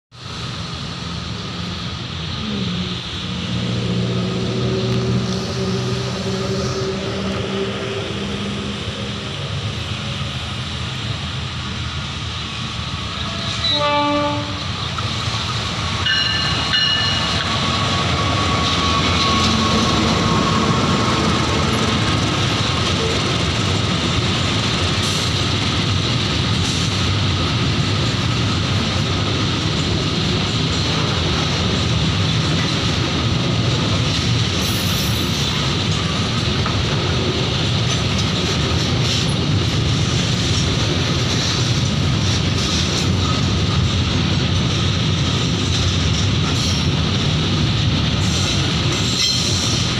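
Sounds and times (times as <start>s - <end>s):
train passing with rumble: 0.1s - 49.9s
locomotive horn: 3.6s - 8.8s, 13.2s - 14.8s.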